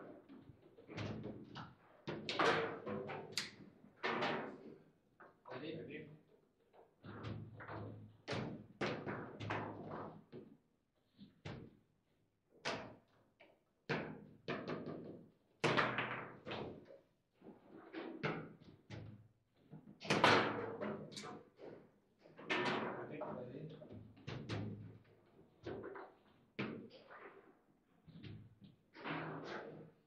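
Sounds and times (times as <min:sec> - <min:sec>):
table football knocks and clacks: 0:00.0 - 0:05.4, 0:06.8 - 0:11.8, 0:12.5 - 0:17.0, 0:17.6 - 0:23.1, 0:23.7 - 0:27.2.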